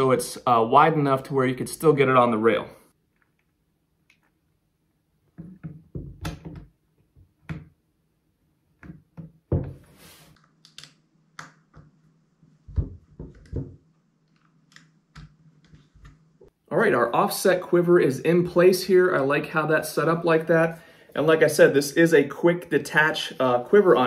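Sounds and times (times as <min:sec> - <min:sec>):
hands clicking and tapping parts: 0:12.7 - 0:16.3.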